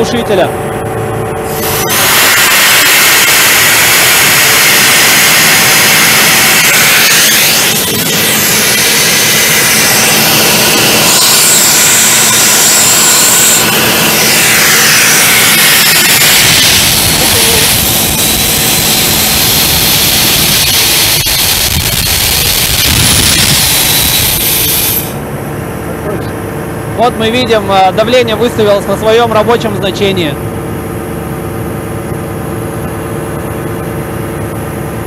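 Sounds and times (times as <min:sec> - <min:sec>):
diesel engine running under load: 0:00.0 - 0:35.0
compressed air hissing from valve: 0:01.5 - 0:25.2.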